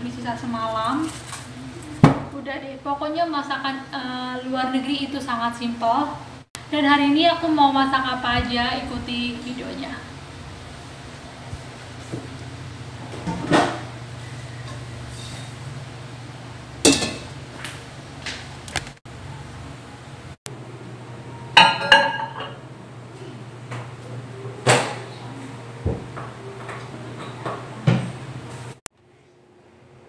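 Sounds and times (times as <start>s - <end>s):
pans and crockery clinking: 16.9s - 17.4s, 21.6s - 22.6s.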